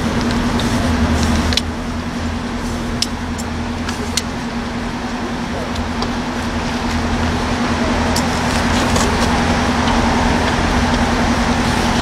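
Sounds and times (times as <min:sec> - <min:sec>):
train diesel engine humming: 0:00.0 - 0:12.0.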